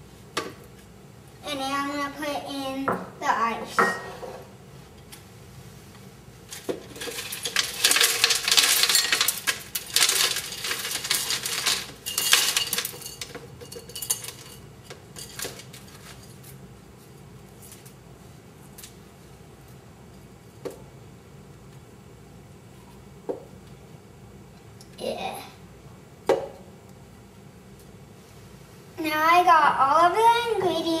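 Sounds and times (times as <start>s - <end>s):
ice cubes clattering into blender: 6.9s - 14.6s.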